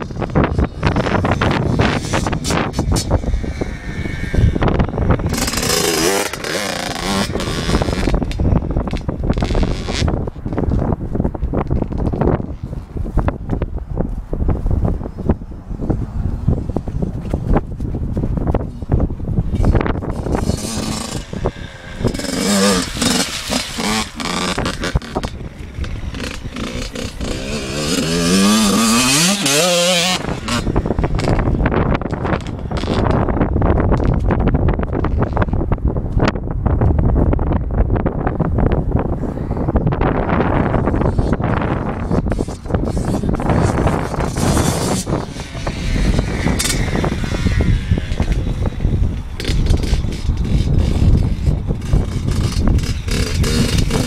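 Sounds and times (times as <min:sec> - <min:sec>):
dirt bike engine revving: 0:00.0 - 0:10.5, 0:18.7 - 0:33.7, 0:40.2 - 0:54.0
wind on microphone: 0:00.0 - 0:54.0.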